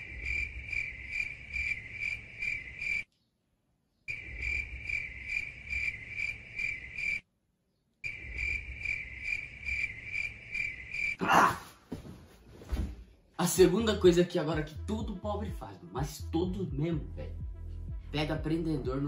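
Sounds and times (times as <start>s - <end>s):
crickets chirping: 0.0s - 3.1s, 4.1s - 7.2s, 8.0s - 11.4s.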